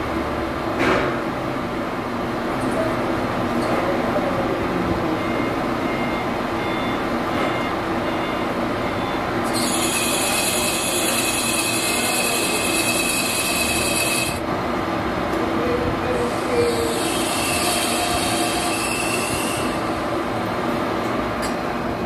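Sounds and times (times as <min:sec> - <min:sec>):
metal lathe running: 0:09.3 - 0:15.3, 0:16.2 - 0:20.8
high-pitched metal squeal: 0:09.4 - 0:14.4, 0:16.1 - 0:20.1.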